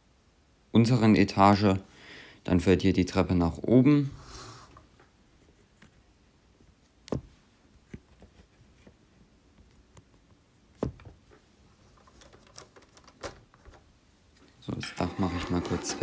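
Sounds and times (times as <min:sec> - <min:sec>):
handling knocks and clicks: 0:07.0 - 0:14.6.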